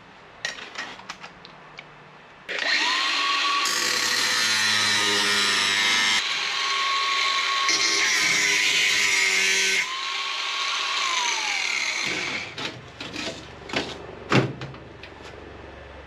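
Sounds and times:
angle grinder cutting steel: 2.5 - 12.6.

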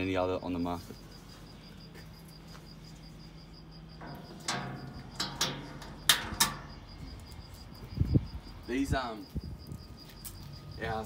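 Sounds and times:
metal latch clicking: 4.0 - 7.0.

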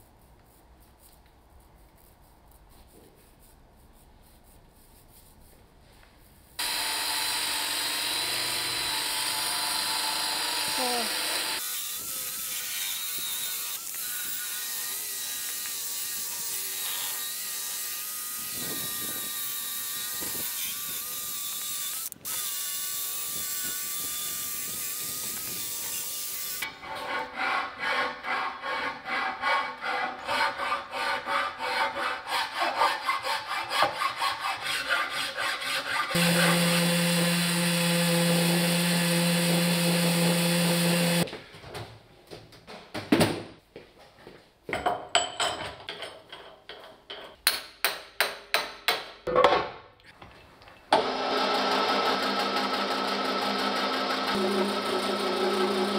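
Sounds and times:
angle grinder with wire brush: 6.6 - 41.3, 51.0 - 55.9
file scraping metal: 25.5 - 41.3
orbital sander humming: 36.1 - 41.3, 54.2 - 55.9.

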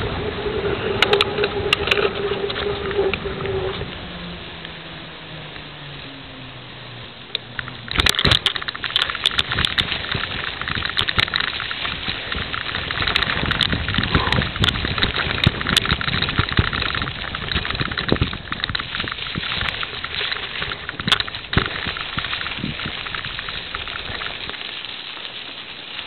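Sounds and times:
wind rushing over microphone: 0.0 - 4.8, 7.8 - 24.5
rattling clicks and knocks: 7.6 - 24.6.

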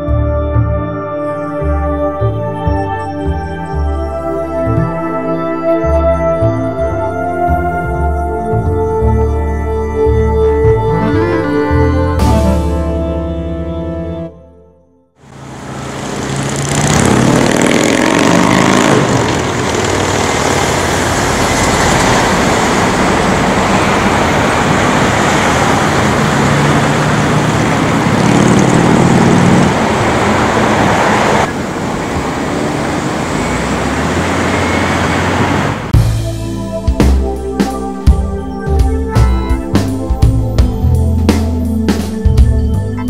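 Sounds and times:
cars and truck passing: 15.2 - 38.2.

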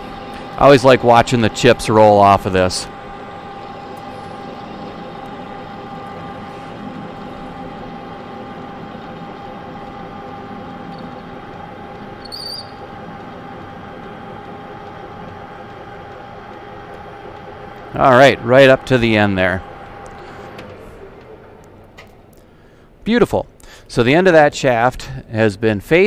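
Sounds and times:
metal lathe motor and gear whine: 0.0 - 26.0
high squeal: 12.2 - 12.9.

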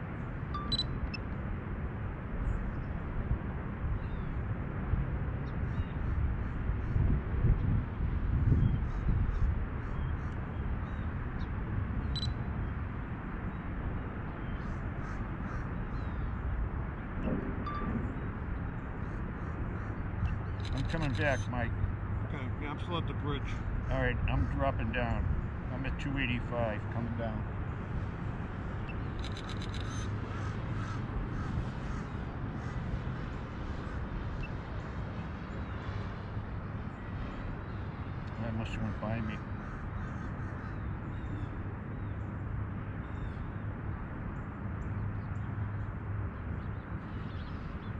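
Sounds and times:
low outdoor rumble: 13.8 - 42.5
bird calling: 19.0 - 21.6
sharp high click: 20.2 - 21.4, 28.9 - 30.1
crows cawing: 29.8 - 32.9, 39.5 - 41.3.

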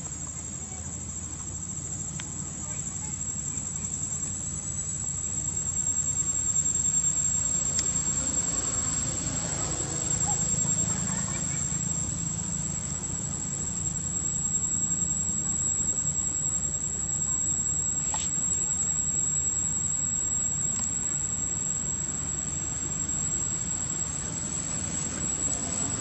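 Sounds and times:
high-pitched insect drone: 0.0 - 26.0.

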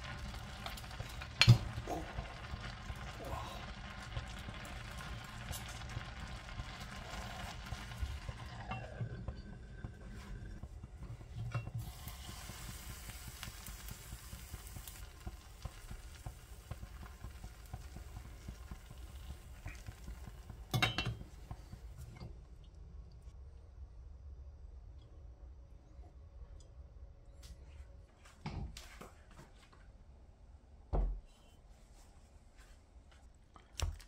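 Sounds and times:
food sizzling in a pan: 0.0 - 22.0
utensil clattering on cookware: 20.6 - 21.4.

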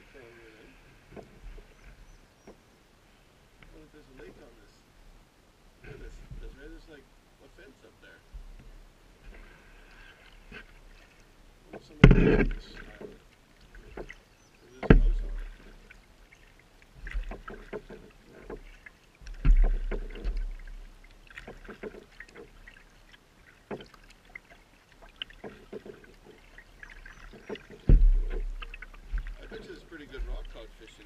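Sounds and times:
paddle splashing: 0.0 - 4.6, 8.0 - 31.0
thumps: 11.7 - 13.2, 14.8 - 15.5, 17.0 - 22.5, 27.2 - 30.6
water dripping: 12.6 - 31.0.

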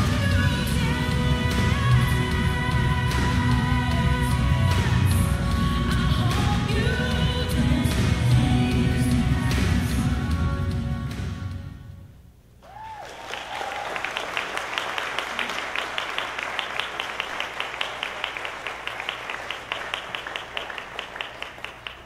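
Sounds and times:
backing music: 0.0 - 12.2
audience clapping: 12.6 - 22.0.

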